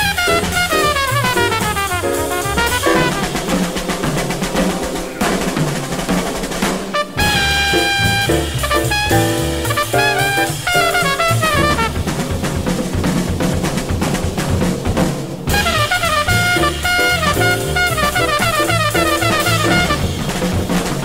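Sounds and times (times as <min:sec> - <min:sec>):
walking bass: 0:00.0 - 0:03.5, 0:07.2 - 0:12.7, 0:15.5 - 0:20.3
horns playing chords: 0:00.0 - 0:03.9, 0:06.9 - 0:12.1, 0:15.5 - 0:20.2
drums: 0:00.0 - 0:21.0
jazz band playing: 0:00.0 - 0:21.0.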